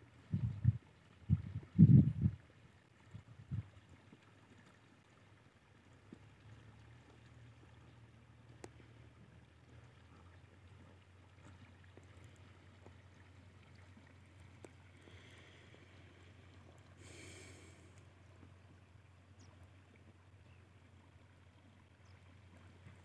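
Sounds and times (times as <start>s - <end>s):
faint ticks: 8.4s - 9.0s, 11.4s - 18.6s.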